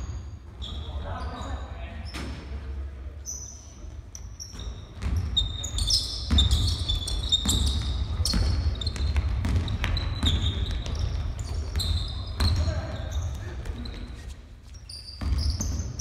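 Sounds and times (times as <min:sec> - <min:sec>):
sneakers squeaking: 0:00.0 - 0:16.0
basketball dribbling thuds: 0:04.5 - 0:14.0, 0:15.2 - 0:16.0.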